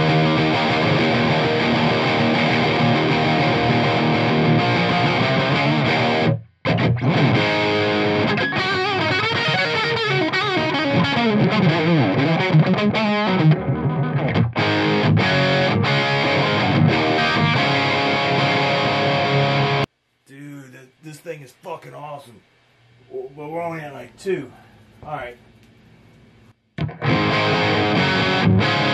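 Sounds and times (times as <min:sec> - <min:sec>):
distorted electric guitar: 0:00.0 - 0:19.9, 0:26.8 - 0:28.9.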